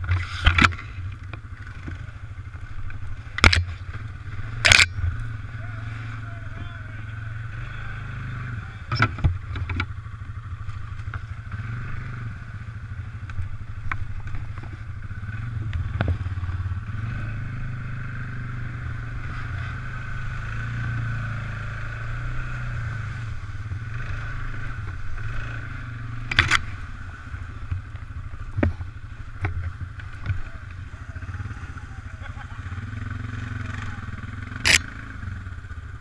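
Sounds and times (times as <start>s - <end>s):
knocks and clatter of quad: 0.0s - 5.4s, 8.7s - 12.3s, 13.0s - 16.7s, 26.2s - 26.9s, 27.5s - 31.3s
atv engine running: 0.0s - 36.0s.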